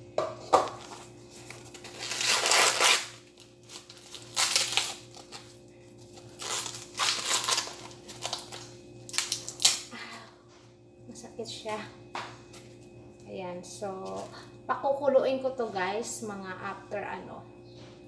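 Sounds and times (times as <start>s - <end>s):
corn husks tearing: 1.4s - 5.5s, 6.1s - 9.9s.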